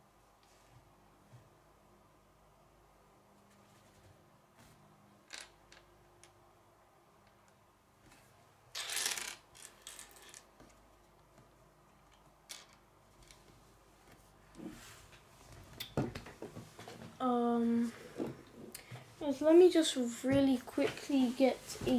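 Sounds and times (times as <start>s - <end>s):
plastic pieces clattering: 8.7s - 10.6s
plastic pieces clicking: 8.7s - 10.7s.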